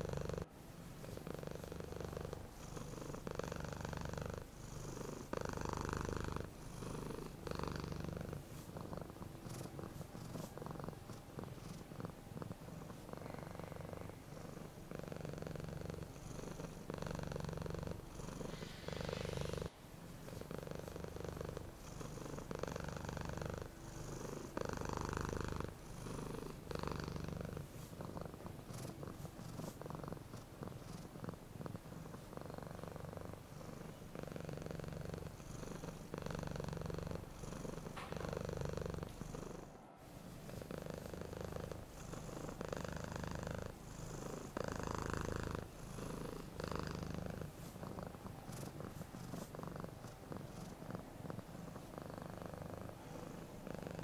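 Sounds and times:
cat purring: 0:00.0 - 0:54.0.

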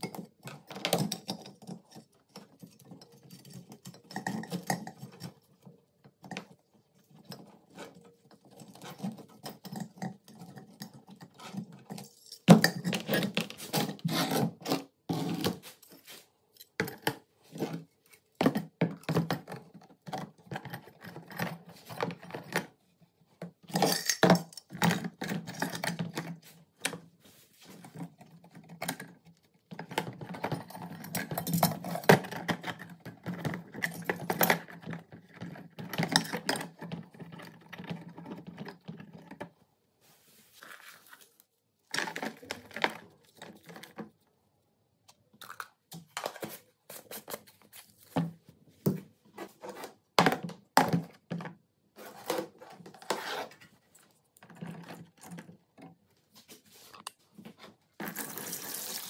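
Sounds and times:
metal parts clinking and rattling: 0:23.7 - 0:26.2, 0:30.2 - 0:39.1.

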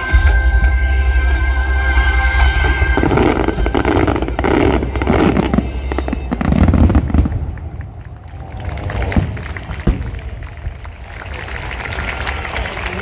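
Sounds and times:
fireworks crackling: 0:02.6 - 0:13.0.

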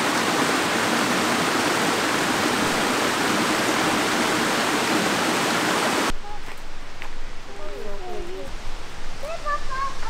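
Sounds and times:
stream rushing over rocks: 0:00.0 - 0:10.0
quiet outdoor ambience: 0:06.0 - 0:10.0.

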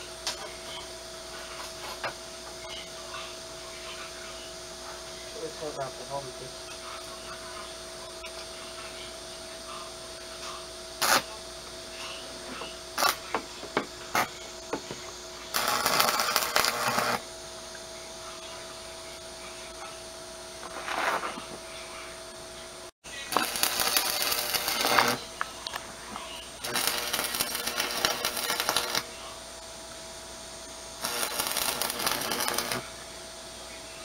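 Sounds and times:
welding arc sizzling: 0:10.4 - 0:11.4, 0:12.8 - 0:17.4, 0:23.1 - 0:25.5, 0:26.2 - 0:29.4, 0:30.6 - 0:33.0.

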